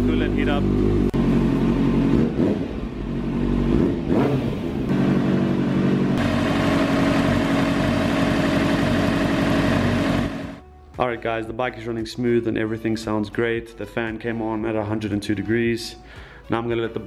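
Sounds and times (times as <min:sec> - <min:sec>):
motorcycle engine idling: 0:04.9 - 0:10.6.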